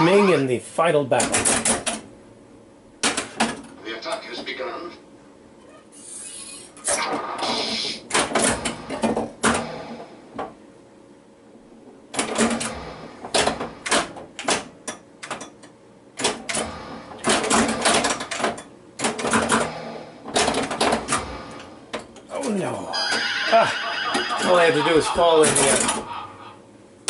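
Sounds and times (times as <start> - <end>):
pinball machine clacking: 1.2 - 2.0, 7.0 - 10.6, 12.1 - 26.4.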